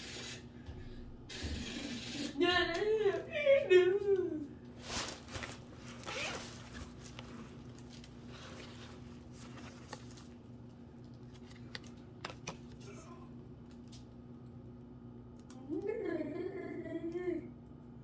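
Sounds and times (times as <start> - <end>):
fabric rustling and scraping: 4.8 - 10.3.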